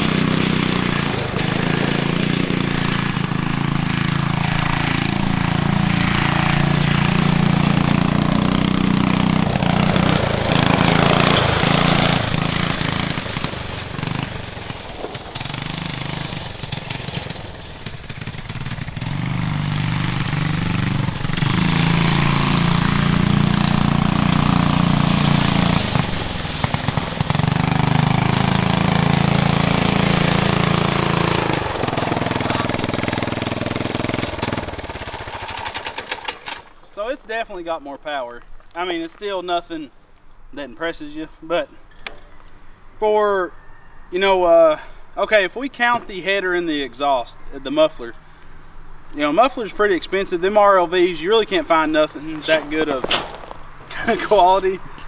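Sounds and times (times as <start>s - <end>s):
go-kart engine revving: 0.0s - 36.7s, 49.7s - 55.0s.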